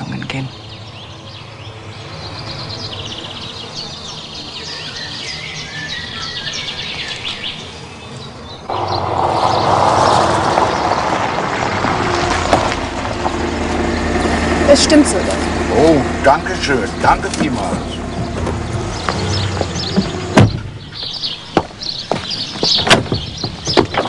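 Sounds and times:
birds chirping and singing: 0.0s - 24.0s
street noise: 0.0s - 24.0s
car engine running: 8.7s - 21.2s.

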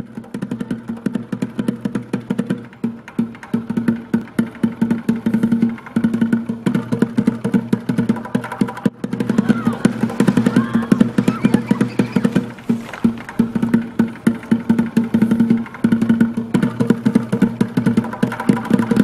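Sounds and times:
music with fast percussive beat: 0.0s - 19.0s.

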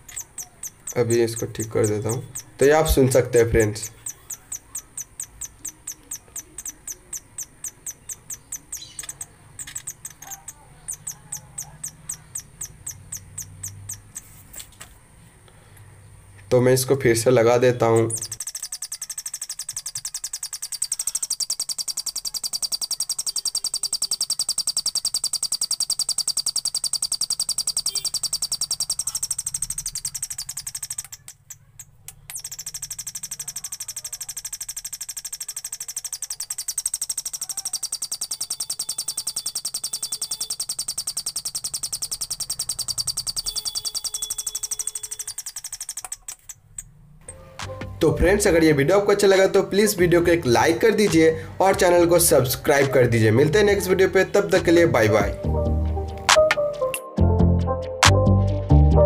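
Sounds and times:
electronic bird-like chirps: 0.0s - 14.3s, 17.8s - 46.1s.

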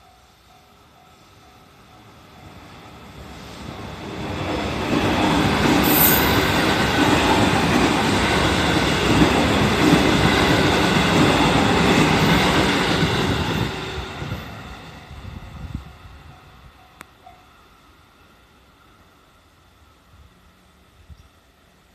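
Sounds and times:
train wheel squeal: 5.2s - 7.1s.

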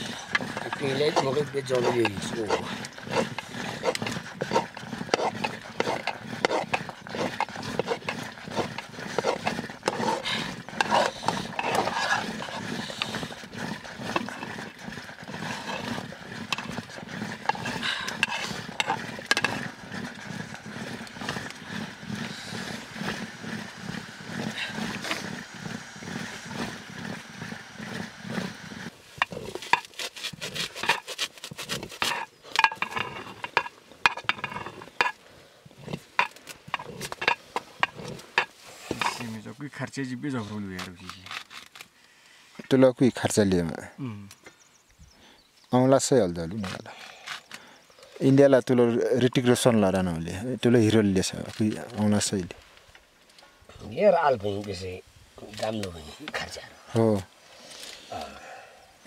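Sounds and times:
metal rod beating dough in pot: 0.0s - 35.2s, 35.8s - 39.3s
ladle scraping and stirring porridge: 0.0s - 39.4s.

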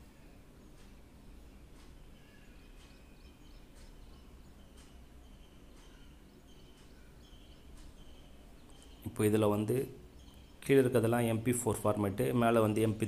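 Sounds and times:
faint high-pitched chirps: 0.0s - 10.8s
faint clicks: 3.7s - 5.1s.

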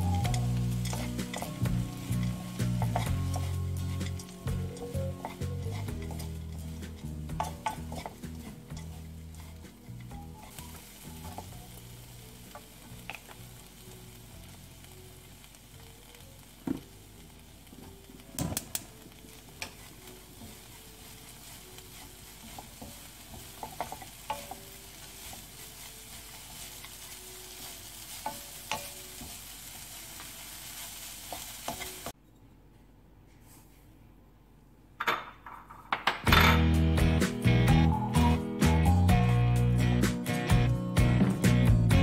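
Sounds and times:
fish sizzling in oil: 0.0s - 32.2s.

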